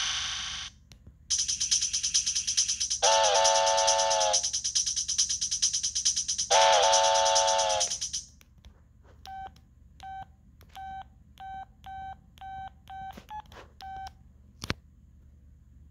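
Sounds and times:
electronic ringtone chord: 0:01.3 - 0:08.2.

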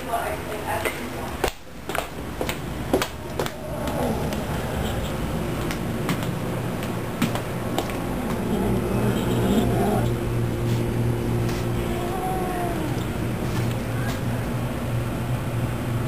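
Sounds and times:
cat growling: 0:03.5 - 0:05.0, 0:08.0 - 0:10.2, 0:11.8 - 0:13.2.

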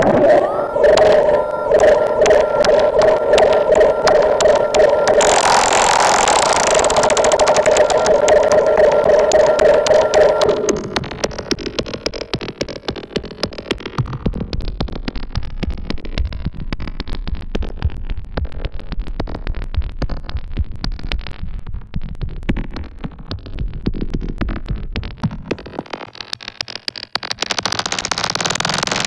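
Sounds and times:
deep synth bass: 0:00.0 - 0:11.3
clicky gritty electronic pulses: 0:00.0 - 0:25.9.

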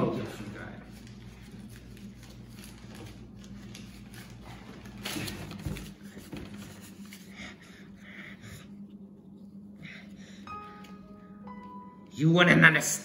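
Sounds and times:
steady low hum: 0:00.0 - 0:13.0
paper rustling and crinkling: 0:00.2 - 0:07.3.

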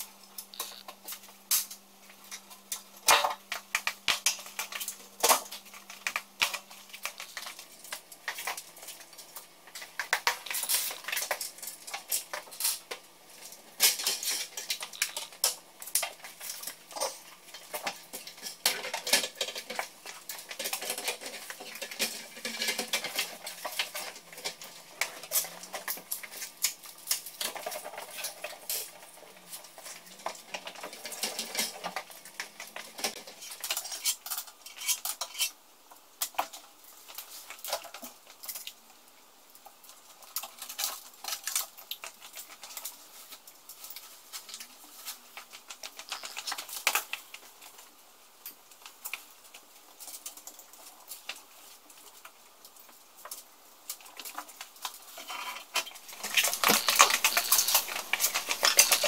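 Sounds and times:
metallic clicks and clinks: 0:55.8 - 0:59.0.

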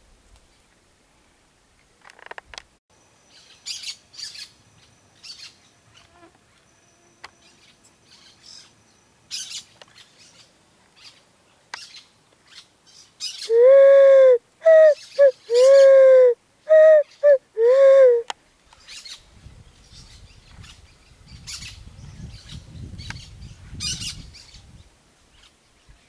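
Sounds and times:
small birds chirping: 0:07.2 - 0:26.0
pigeon cooing loudly: 0:13.5 - 0:18.3.

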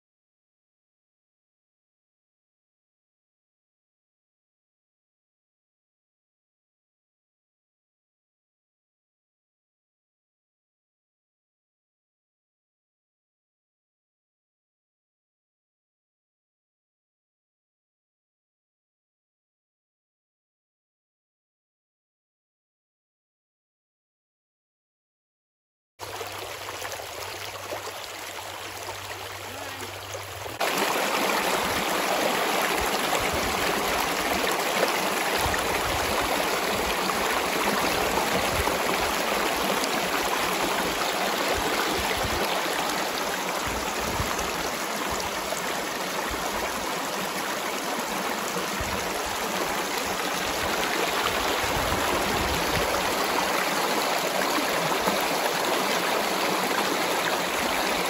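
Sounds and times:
river water splashing over rocks: 0:26.0 - 0:58.0.

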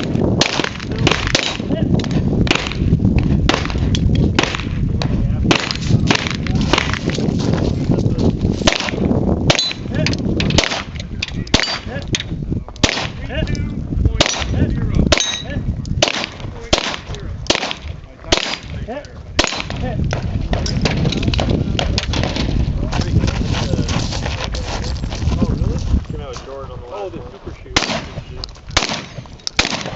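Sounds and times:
gunshots: 0:00.0 - 0:02.9, 0:03.5 - 0:04.8, 0:05.5 - 0:07.2, 0:08.6 - 0:12.0, 0:12.8 - 0:13.3, 0:14.1 - 0:22.5, 0:27.7 - 0:29.9.

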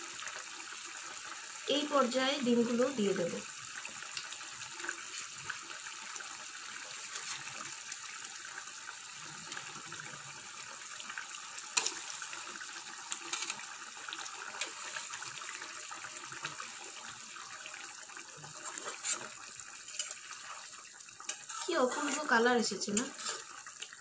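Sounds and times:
curry simmering and bubbling: 0:00.0 - 0:24.0.

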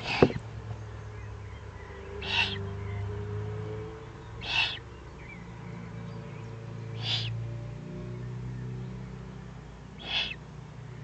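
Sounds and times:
owl chick hissing rasps: 0:00.0 - 0:00.4, 0:02.2 - 0:02.7, 0:04.4 - 0:04.8, 0:07.0 - 0:07.4, 0:10.0 - 0:10.4.

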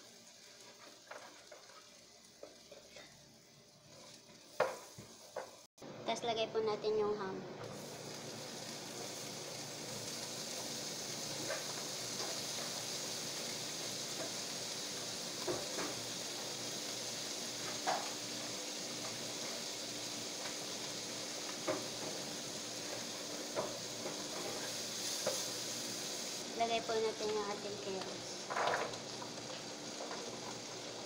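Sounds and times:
ham sizzling in a pan: 0:00.0 - 0:05.7, 0:07.6 - 0:31.0.

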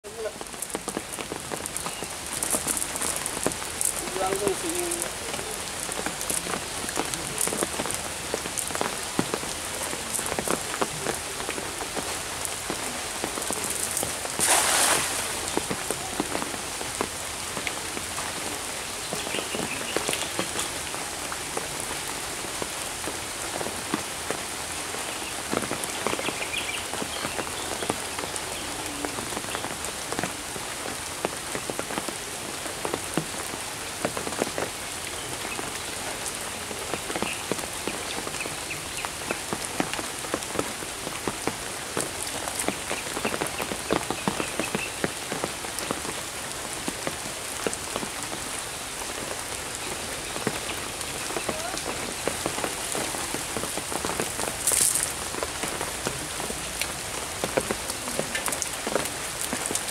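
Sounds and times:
rain pattering: 0:00.0 - 0:59.9
net splashing into water: 0:14.4 - 0:15.5.

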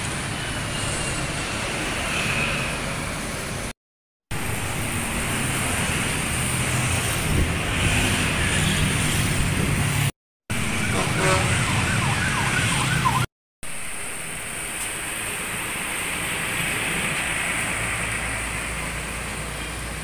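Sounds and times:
road traffic: 0:00.0 - 0:20.0
warbling siren-like horn: 0:10.5 - 0:13.3.

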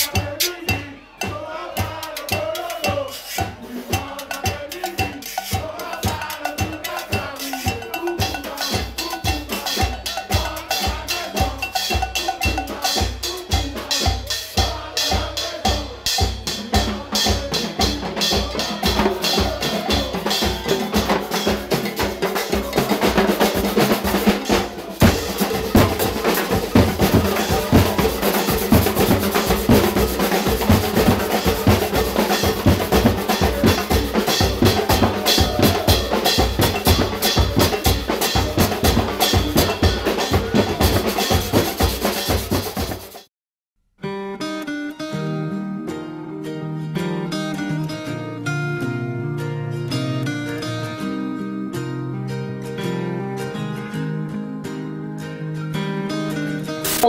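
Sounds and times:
drum band playing: 0:00.0 - 0:43.3.

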